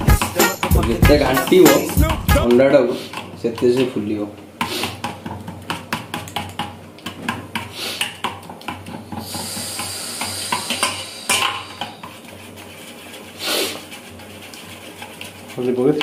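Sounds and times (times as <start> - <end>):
steady hiss: 9.0 - 14.0.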